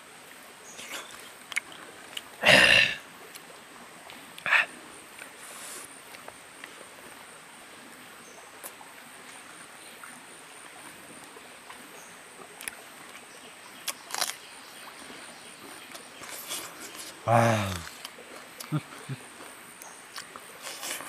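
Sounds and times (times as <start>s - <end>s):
outdoor background noise: 0.0s - 21.0s
man chewing food: 0.8s - 2.4s, 13.8s - 14.4s, 15.7s - 19.1s, 20.1s - 21.0s.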